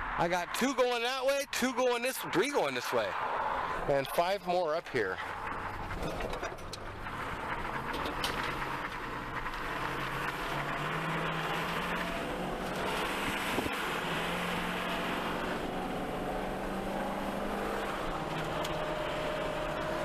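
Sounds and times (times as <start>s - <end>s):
engine low hum: 4.9s - 20.0s.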